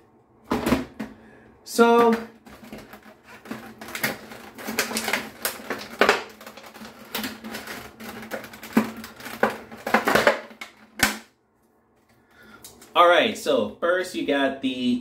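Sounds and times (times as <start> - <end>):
plastic packaging crinkling: 2.3 - 11.1
plastic snapping: 2.4 - 11.3.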